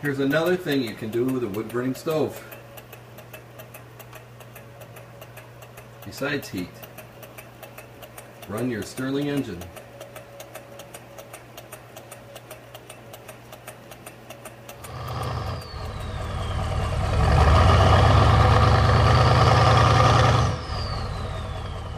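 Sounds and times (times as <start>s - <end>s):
model engine ticking: 0.0s - 19.3s
engine sound with falling whoosh: 14.8s - 21.9s.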